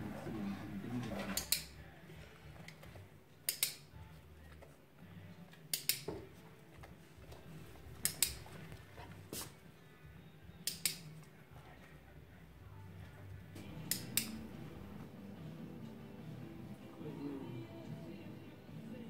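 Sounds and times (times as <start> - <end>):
dog-training clicker clicking: 5.7 - 6.1, 8.0 - 8.4.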